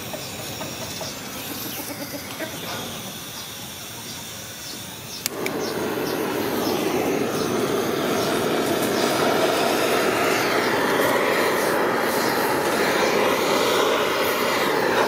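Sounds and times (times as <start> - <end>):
butane torch igniter clicking: 4.6 - 15.0
torch flame rushing: 5.2 - 15.0.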